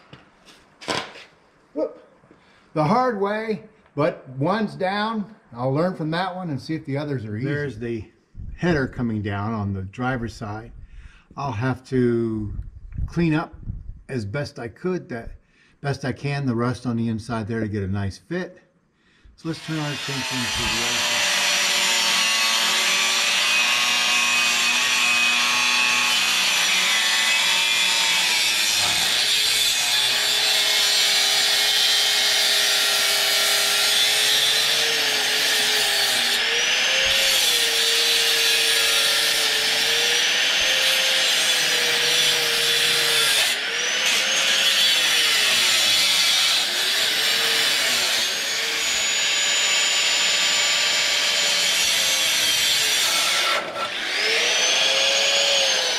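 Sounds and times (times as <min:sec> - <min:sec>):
angle grinder cutting metal pipe: 0:19.4 - 0:55.9.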